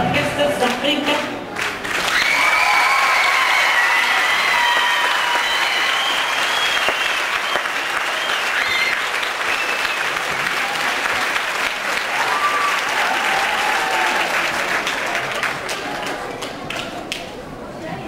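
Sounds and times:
audience applauding: 1.1s - 17.3s
high-pitched cheers: 2.0s - 11.1s, 11.9s - 14.7s.

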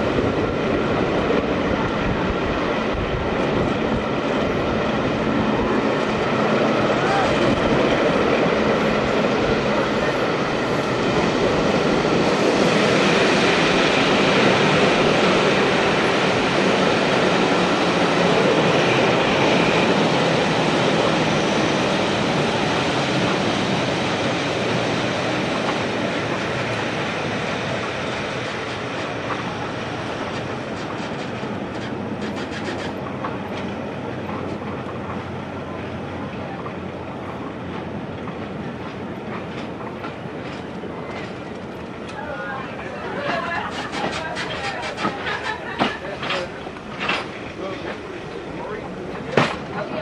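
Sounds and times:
train wheels rumbling on rails: 0.0s - 50.0s.

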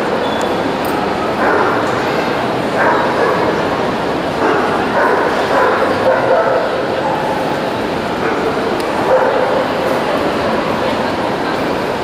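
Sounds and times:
crowd chatter: 0.0s - 12.0s
dogs barking and yelping: 1.4s - 1.9s, 2.7s - 3.6s, 4.4s - 7.4s, 8.2s - 9.9s.

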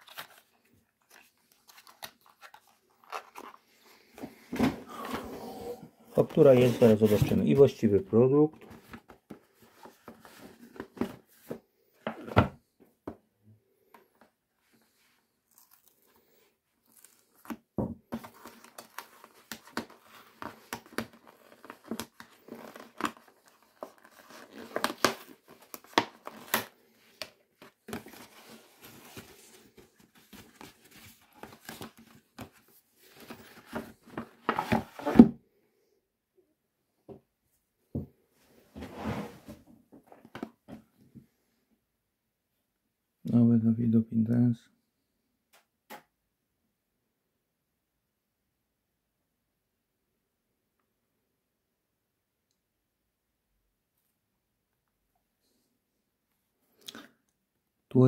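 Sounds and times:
cardboard and paper rustling: 0.0s - 5.2s, 6.2s - 7.9s, 8.5s - 12.5s, 14.6s - 35.3s.

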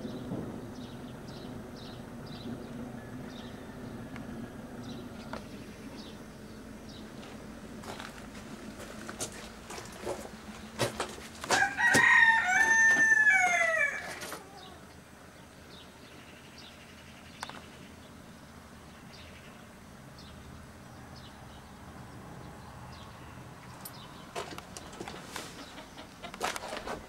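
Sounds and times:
rooster crowing: 11.5s - 14.8s.

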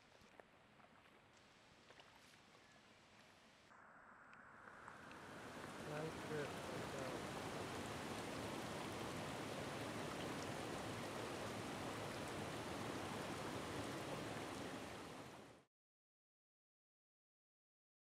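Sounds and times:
stream water rushing: 5.0s - 15.6s.

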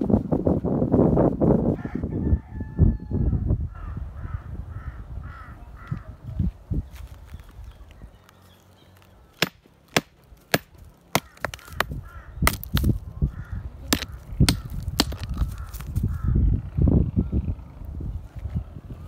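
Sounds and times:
hammer knocking on rock: 13.9s - 15.6s.

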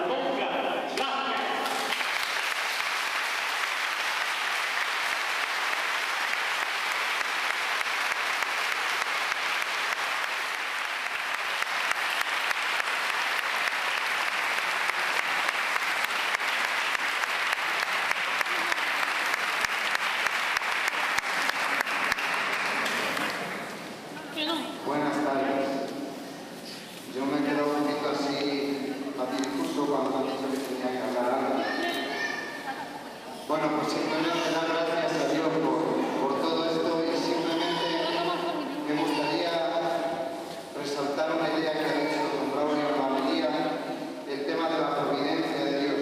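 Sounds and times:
audience applauding: 1.6s - 23.9s.

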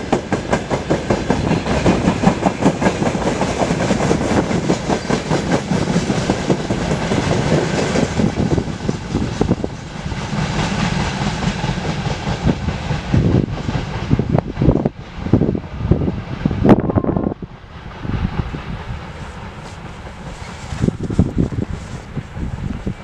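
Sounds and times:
train wheels clicking over rail joints: 0.0s - 15.4s, 17.5s - 23.0s.

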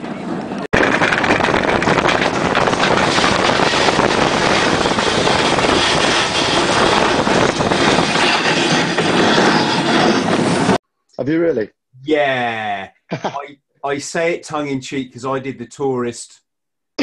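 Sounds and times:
bobsleigh rushing on ice: 0.3s - 10.8s
runners rattling on ice: 0.8s - 10.8s.

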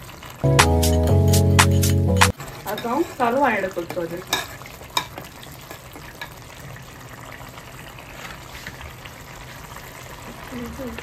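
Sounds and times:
thick gravy bubbling in a pot: 2.3s - 11.0s.

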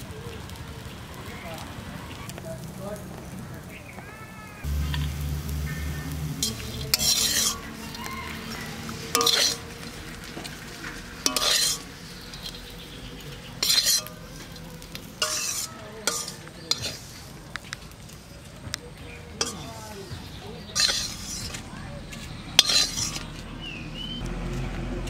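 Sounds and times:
light sizzle: 0.0s - 24.3s
metal spatula scraping wok: 4.6s - 18.4s, 19.2s - 24.1s.

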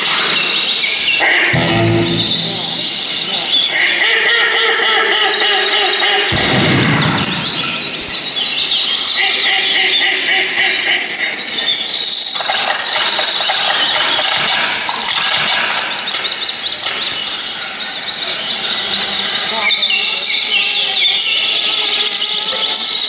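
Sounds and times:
birds chirping and trilling: 0.0s - 23.0s
low boom: 1.5s - 3.5s, 6.3s - 7.5s.

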